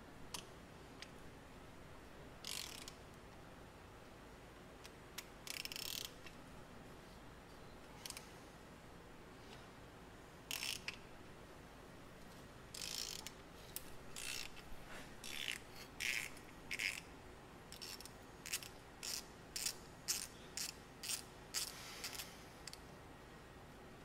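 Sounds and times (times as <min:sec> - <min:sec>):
hand ratchet clicking: 0:02.4 - 0:03.0, 0:05.2 - 0:06.2, 0:10.5 - 0:11.0, 0:12.8 - 0:13.4, 0:14.2 - 0:14.6, 0:15.2 - 0:17.1, 0:17.7 - 0:22.8.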